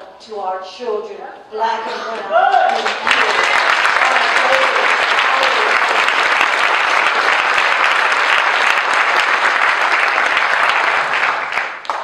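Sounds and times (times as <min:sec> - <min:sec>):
audience applauding: 0:02.6 - 0:12.0.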